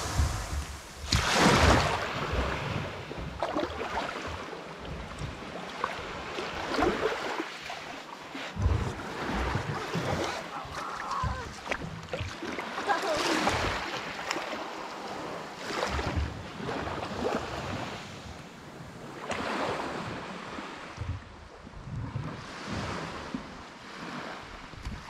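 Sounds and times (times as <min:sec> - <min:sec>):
waves washing onto pebbles: 0:00.0 - 0:04.7
wind rumbling on microphone: 0:00.0 - 0:07.2, 0:08.5 - 0:12.4, 0:14.8 - 0:25.0.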